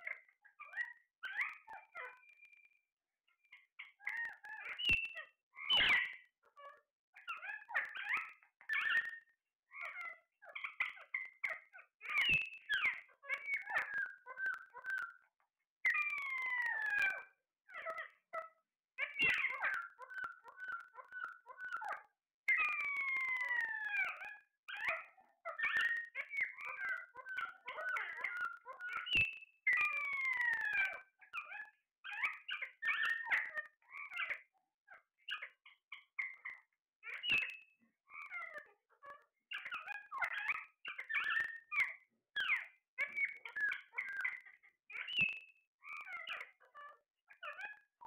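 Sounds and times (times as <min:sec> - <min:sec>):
parakeets calling: 0:09.8 - 0:15.0, 0:19.0 - 0:21.9, 0:22.6 - 0:30.8, 0:31.4 - 0:34.4, 0:39.5 - 0:47.8
parakeets squawking: 0:19.1 - 0:21.8, 0:24.8 - 0:29.1.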